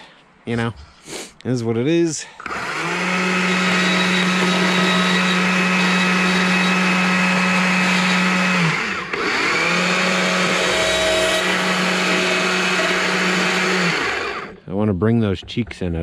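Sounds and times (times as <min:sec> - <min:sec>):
chainsaw cutting wood: 0:02.4 - 0:14.6.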